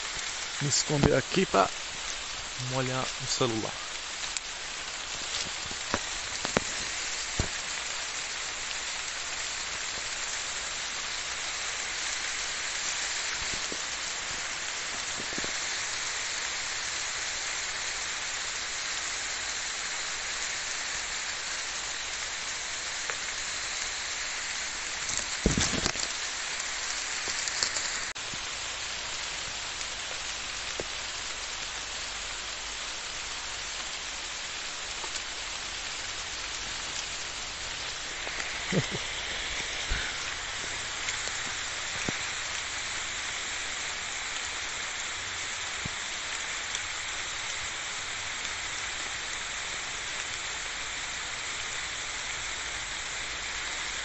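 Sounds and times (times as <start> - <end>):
rain drop clicks: 0.0 - 17.6, 22.9 - 31.7, 33.1 - 50.3
rain on leaves and ground: 0.0 - 54.0.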